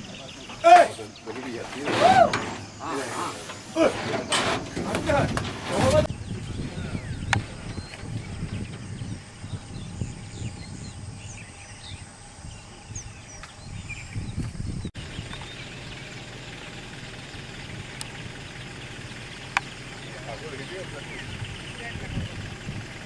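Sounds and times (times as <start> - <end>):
birds chirping: 0.0 - 23.0
truck engine running: 0.1 - 10.7, 15.0 - 23.0.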